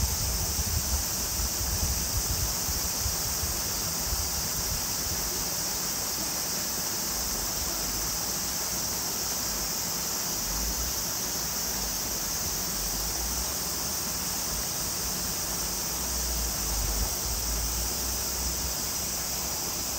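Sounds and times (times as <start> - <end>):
wind rumble on microphone: 0.0 - 4.9
cicada chorus: 0.0 - 19.9.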